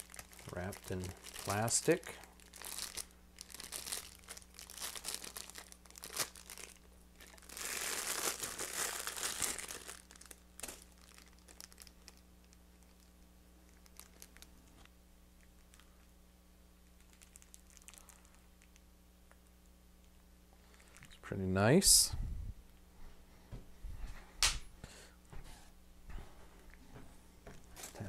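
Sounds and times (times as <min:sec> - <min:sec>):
plastic wrapping crinkling: 0:00.0 - 0:16.1, 0:16.9 - 0:18.8, 0:27.5 - 0:28.0.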